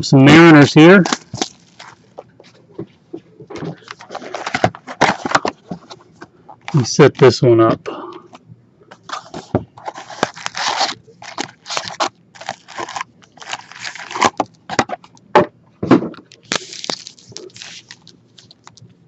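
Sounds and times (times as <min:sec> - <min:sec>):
card packs crinkling and scraping: 0:00.3 - 0:02.7, 0:03.6 - 0:07.3, 0:08.9 - 0:15.2, 0:16.2 - 0:19.0.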